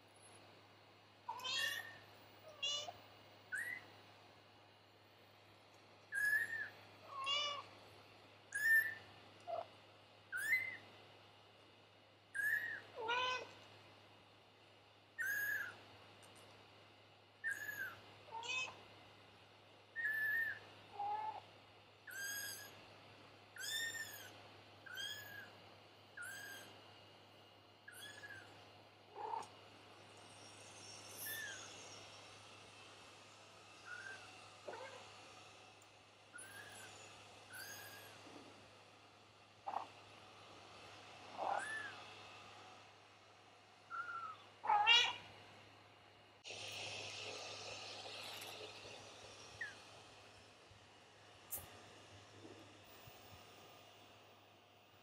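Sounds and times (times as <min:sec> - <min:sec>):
kittens mewing: 0:01.3 - 0:03.8, 0:29.2 - 0:29.5, 0:41.4 - 0:42.0, 0:43.9 - 0:45.2.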